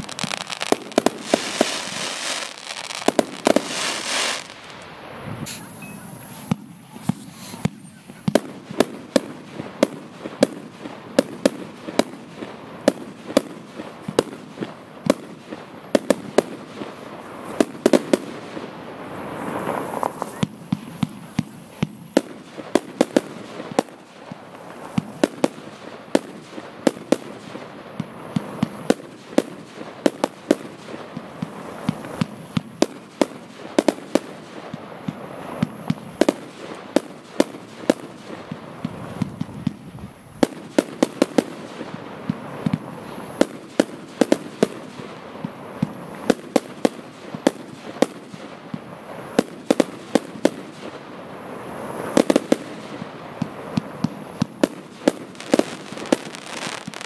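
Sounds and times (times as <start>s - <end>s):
firework battery shots and bangs: 52.0s - 57.0s.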